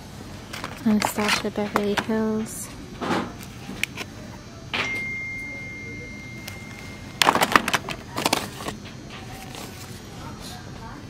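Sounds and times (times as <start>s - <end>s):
high ding-like tone: 4.8s - 7.1s
cardboard boxes clicking and knocking: 7.2s - 8.8s.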